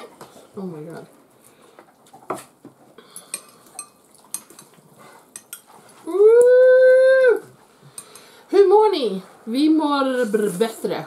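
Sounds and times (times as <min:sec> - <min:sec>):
cutlery clinking on tray and bowls: 0:03.2 - 0:05.7.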